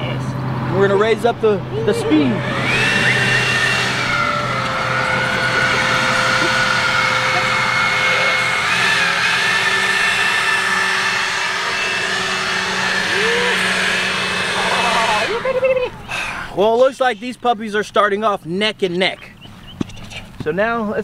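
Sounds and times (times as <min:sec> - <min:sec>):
leaf blower running: 0:00.0 - 0:16.6.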